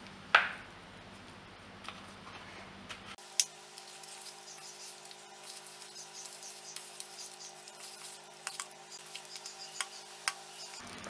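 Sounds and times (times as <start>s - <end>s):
steady low hum: 3.2s - 10.8s.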